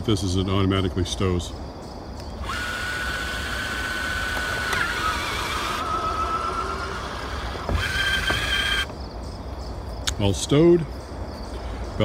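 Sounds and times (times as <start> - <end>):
electric motor whine: 2.4 - 8.9.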